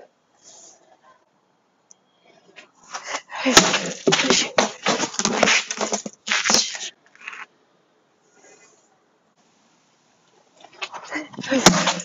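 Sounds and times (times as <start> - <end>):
cones scraping over concrete: 2.6 - 7.5
cane striking plastic cones: 3.5 - 6.8, 11.4 - 12.0.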